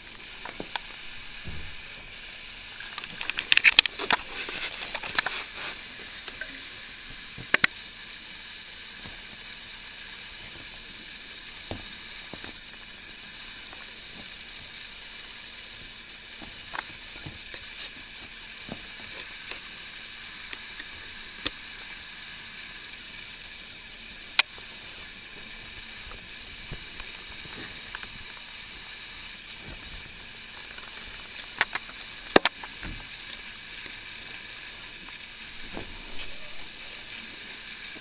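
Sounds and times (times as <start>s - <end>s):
steady hiss: 0.0s - 38.0s.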